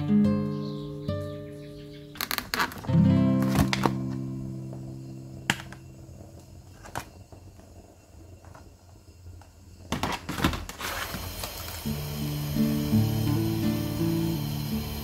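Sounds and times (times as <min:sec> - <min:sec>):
soft guitar music: 0:00.0 - 0:06.6, 0:11.8 - 0:15.0.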